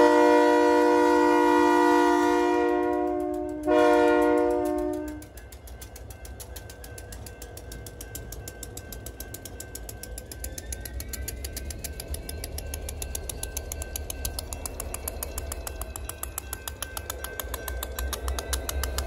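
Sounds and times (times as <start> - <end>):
diesel locomotive rumbling: 0.0 - 19.0
rapid even clicking: 4.3 - 19.0.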